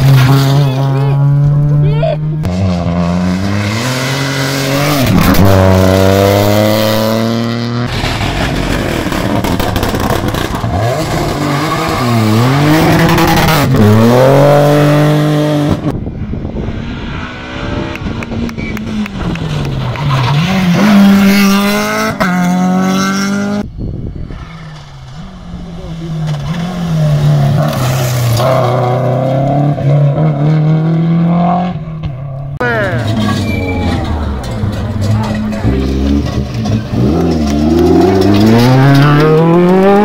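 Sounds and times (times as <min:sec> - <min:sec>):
rally car engines at full throttle: 0:00.0 - 0:40.0.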